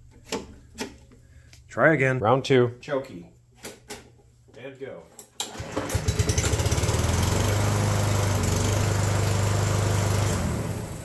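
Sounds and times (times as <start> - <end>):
lawn mower engine running: 5.5 - 11.0.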